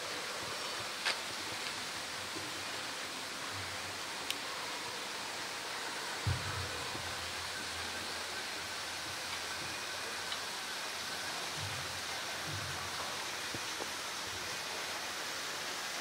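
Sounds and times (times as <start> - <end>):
running water rushing: 0.0 - 16.0
low thump: 6.2 - 6.6.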